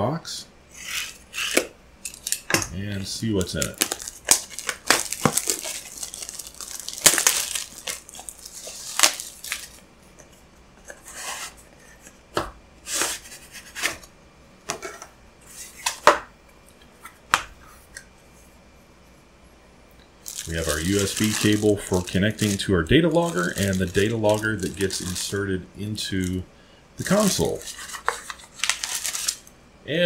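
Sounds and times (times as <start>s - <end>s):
plastic shrink-wrap crinkling: 0.8s - 2.6s, 3.2s - 9.8s, 20.2s - 26.4s, 27.0s - 29.5s.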